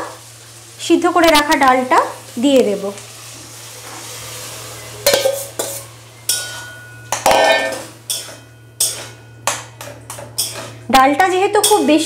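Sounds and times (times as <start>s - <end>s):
hot pan sizzling: 0.0s - 12.0s
bowl clanking against a pan: 5.0s - 12.0s.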